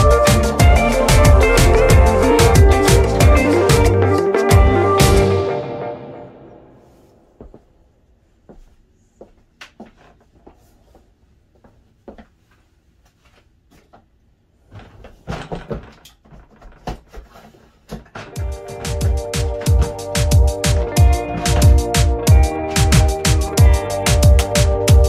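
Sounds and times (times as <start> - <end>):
suitcase clicks and knocks: 14.7 - 17.3.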